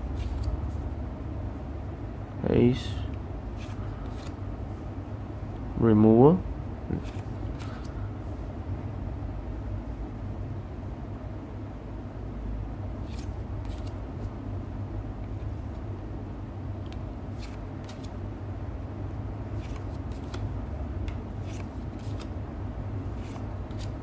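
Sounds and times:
cards sliding swishes: 0:00.0 - 0:00.9, 0:03.5 - 0:04.4, 0:06.9 - 0:08.0, 0:13.0 - 0:14.4, 0:16.8 - 0:18.2, 0:19.5 - 0:22.4, 0:23.0 - 0:24.0.

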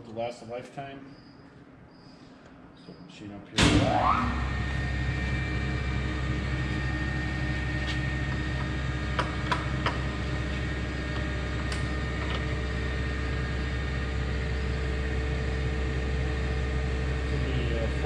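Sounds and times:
lathe motor hum: 0:04.0 - 0:18.0.

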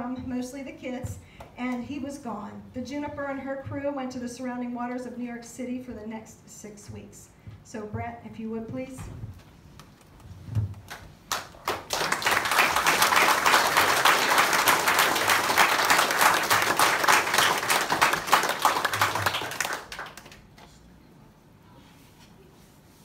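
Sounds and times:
audience applauding: 0:10.9 - 0:20.6.

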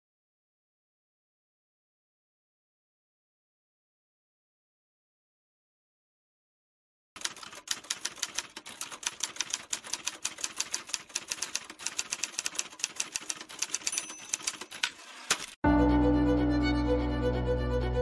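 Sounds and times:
typewriter keystrokes clacking: 0:07.2 - 0:15.6.

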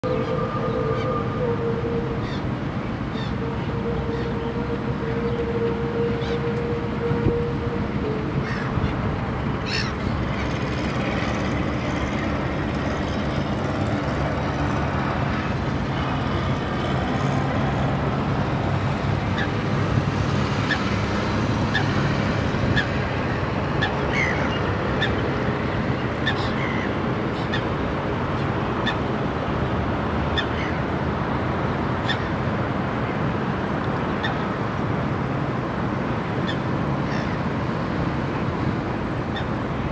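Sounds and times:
waterbird calls: 0:00.0 - 0:13.6, 0:19.2 - 0:19.8, 0:21.6 - 0:29.2, 0:30.3 - 0:30.9, 0:32.0 - 0:32.5, 0:34.1 - 0:34.6, 0:36.4 - 0:37.5, 0:39.2 - 0:39.7.

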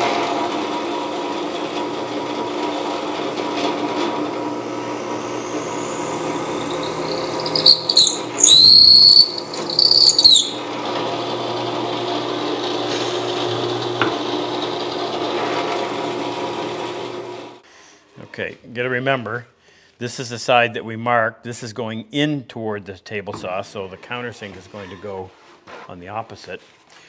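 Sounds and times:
drill press motor running: 0:00.6 - 0:17.6
drill bit squealing in wood: 0:05.4 - 0:10.7.

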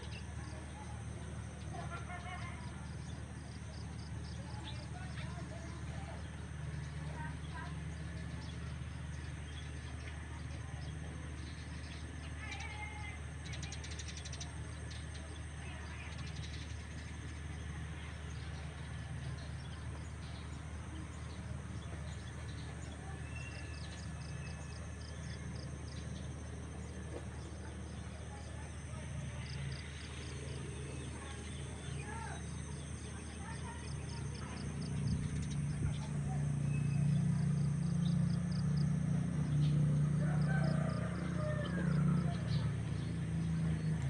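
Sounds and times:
birds chirping: 0:00.0 - 0:44.0
steady low rumble: 0:14.5 - 0:44.0.

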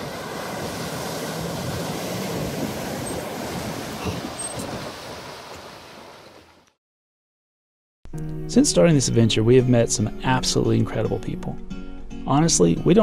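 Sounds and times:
water splashing and spraying: 0:00.0 - 0:06.6.

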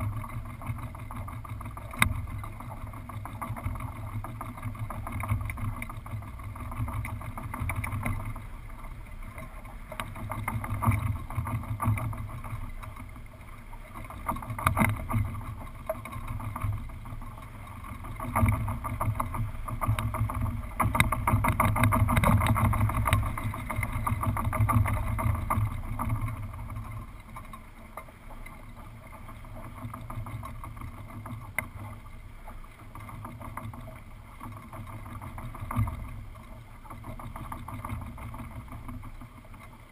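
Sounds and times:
wind rumbling over microphone: 0:00.0 - 0:27.3.

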